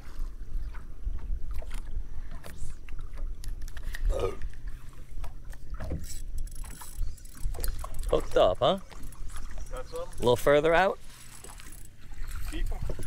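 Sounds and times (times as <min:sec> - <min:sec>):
water slapping against boat hull: 0:00.0 - 0:06.8, 0:11.1 - 0:13.0.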